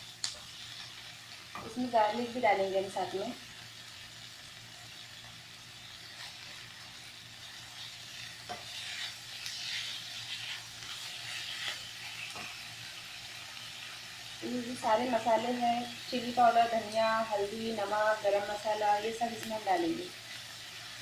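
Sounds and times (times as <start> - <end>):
food sizzling in frying pan: 0.0 - 21.0
spatula stirring and scraping: 6.0 - 12.6.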